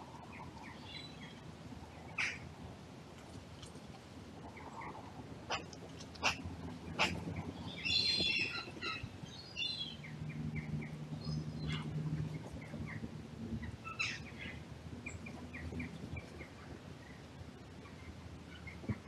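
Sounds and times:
wild birds calling: 2.1s - 2.4s, 4.5s - 16.6s.

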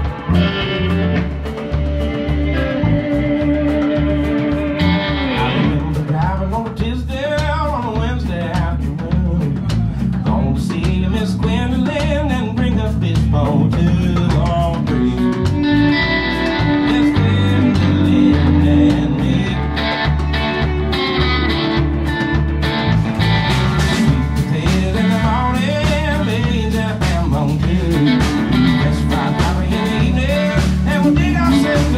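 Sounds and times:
lead guitar bent notes: 0.0s - 6.3s, 14.5s - 26.9s, 27.6s - 31.9s
live blues band: 0.0s - 31.9s.

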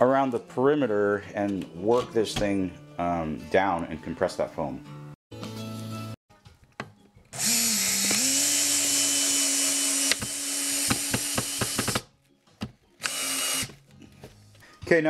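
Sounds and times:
cordless drill driving a screw: 7.4s - 12.0s, 13.0s - 13.7s.

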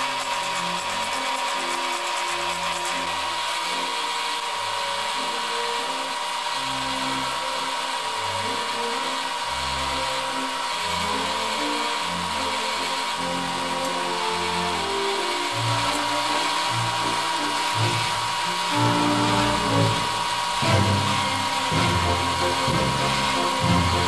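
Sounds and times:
abrasive wheel grinding metal: 0.0s - 24.0s.

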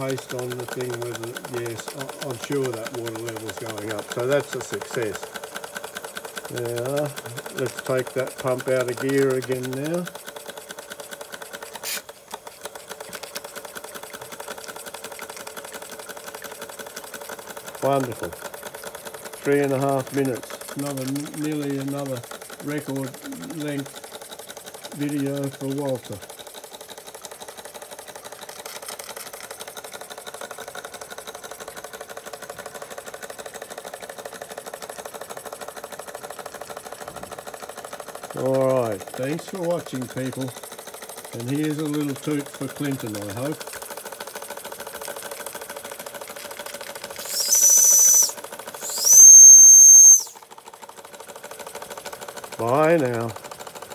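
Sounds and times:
toy steam engine running: 0.0s - 53.9s
steam hiss: 47.2s - 50.4s.

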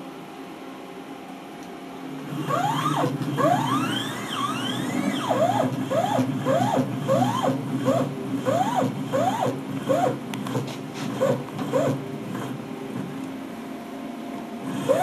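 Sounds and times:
steady low hum: 0.0s - 15.0s
router motor whining: 2.3s - 12.6s, 14.7s - 15.0s.

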